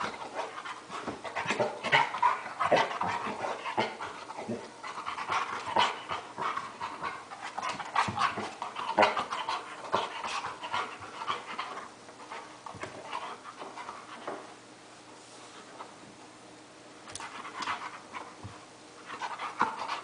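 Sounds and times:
dog panting: 0:00.0 - 0:14.4, 0:19.0 - 0:20.0.

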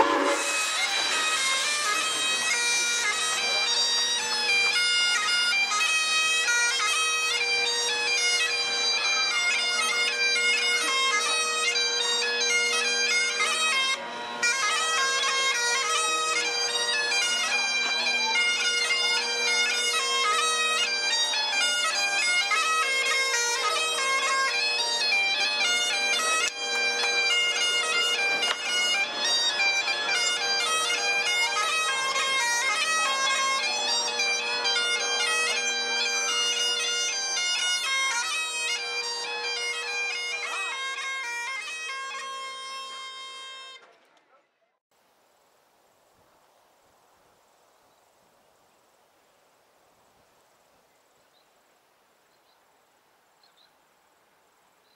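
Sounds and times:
bagpipes playing: 0:00.0 - 0:43.8.

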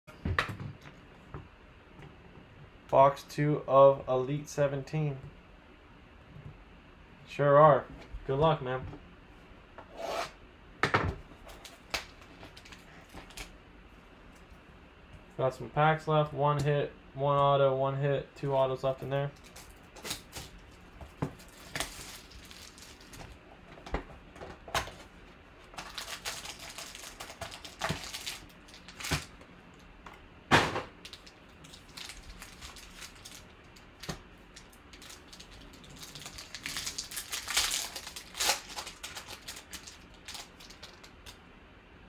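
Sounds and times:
foil wrappers crinkling: 0:19.4 - 0:23.4, 0:24.8 - 0:29.4, 0:31.0 - 0:41.4
foil pack tearing open: 0:21.4 - 0:23.2, 0:25.7 - 0:29.3, 0:31.1 - 0:41.1.

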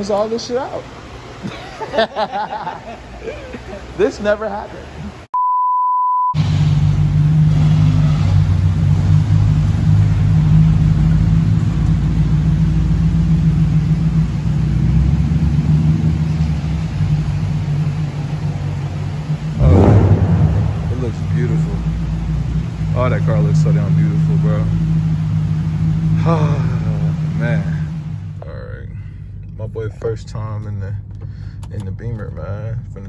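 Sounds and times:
bleep tone: 0:05.4 - 0:06.4
car engine idling: 0:06.4 - 0:33.0.

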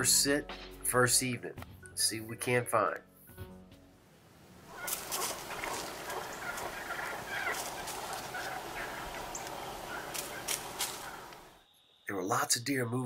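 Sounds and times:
wild turkeys calling: 0:04.6 - 0:11.7.

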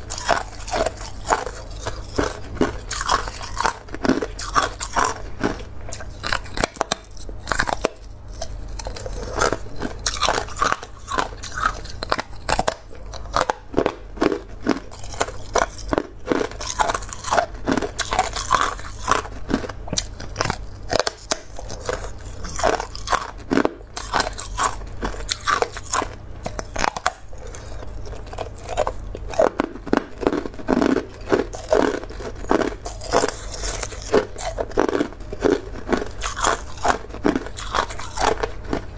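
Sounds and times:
person crunching ice: 0:00.0 - 0:38.9.

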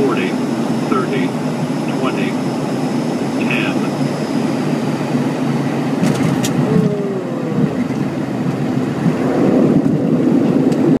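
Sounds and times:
airliner engine rumble: 0:00.0 - 0:11.0.

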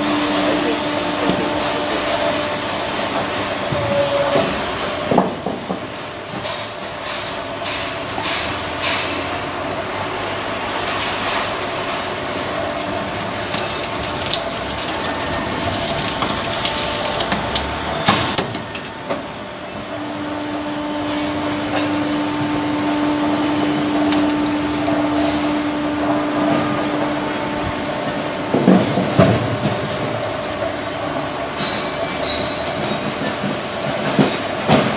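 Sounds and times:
recycling press running: 0:10.2 - 0:34.9.

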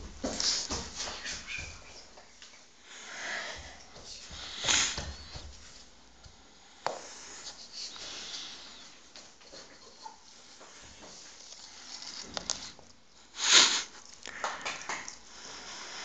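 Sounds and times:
breathy sniff-like puffs: 0:03.0 - 0:05.4.

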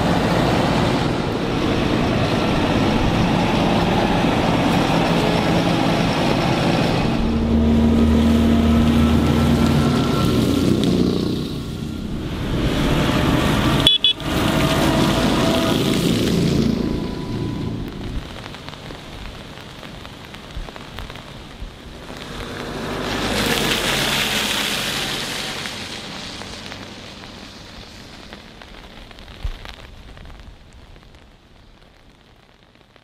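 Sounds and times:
passing tractor: 0:00.0 - 0:18.5, 0:22.0 - 0:28.0
truck tyres hissing on wet road: 0:00.0 - 0:33.0.

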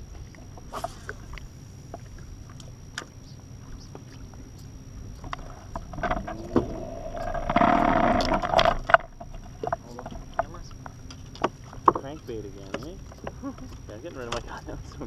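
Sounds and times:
rushing sound with hum: 0:03.5 - 0:09.2.

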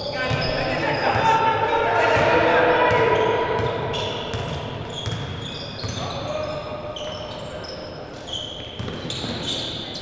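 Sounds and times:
sneakers squeaking on court floor: 0:00.0 - 0:10.0
basketball bouncing: 0:03.6 - 0:06.0, 0:08.8 - 0:09.1.

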